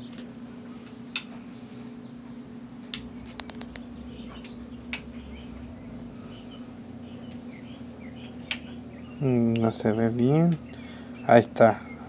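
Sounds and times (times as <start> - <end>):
steady low hum: 0.0 - 12.0
faint bird chirps: 1.5 - 10.0.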